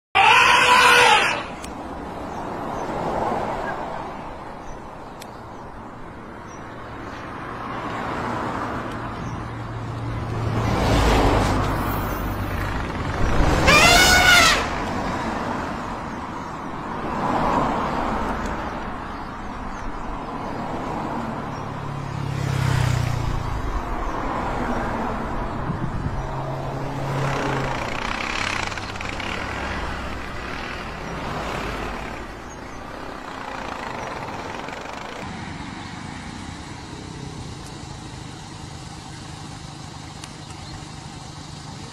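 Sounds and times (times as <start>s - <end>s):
outdoor noise: 0.0s - 41.9s
vehicle engine humming: 0.0s - 41.9s
brassy rising and falling call: 0.1s - 1.7s, 12.6s - 14.9s, 27.1s - 35.2s.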